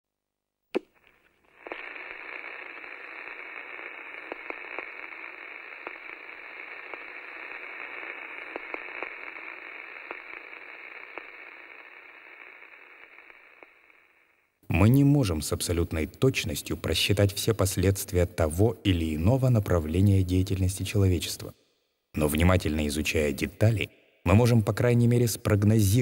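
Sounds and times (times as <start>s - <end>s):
radio static hiss: 0.8s - 21.5s
static crackles: 0.8s - 21.5s, 22.2s - 26.0s.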